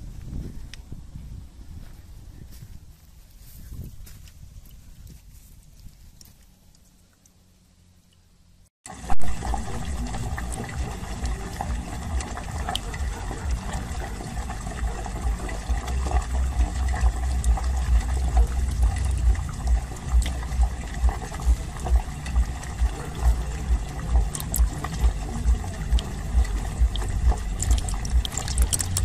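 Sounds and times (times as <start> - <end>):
liquid running and gurgling: 8.9 - 29.0
rhythmic pulse: 8.9 - 29.0.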